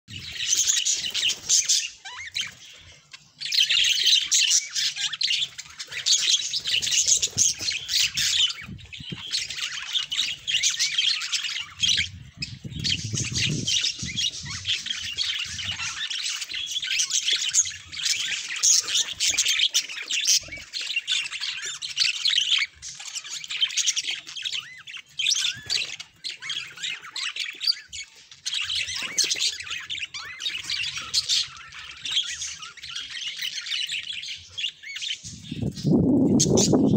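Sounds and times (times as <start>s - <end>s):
budgerigars chattering: 0.1s - 36.9s.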